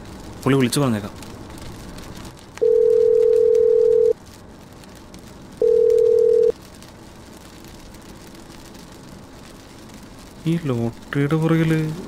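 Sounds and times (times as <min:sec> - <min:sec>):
telephone ringback tone: 0:02.6 - 0:04.1, 0:05.6 - 0:06.5.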